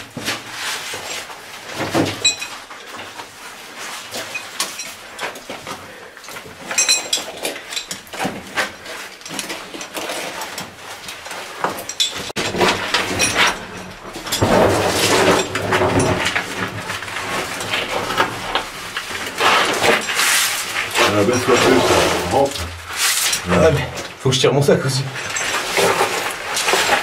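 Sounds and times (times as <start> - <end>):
stones shifting and clattering: 0.3 - 24.2, 25.0 - 27.0
bodies scraping against rock: 12.3 - 24.3, 25.1 - 27.0.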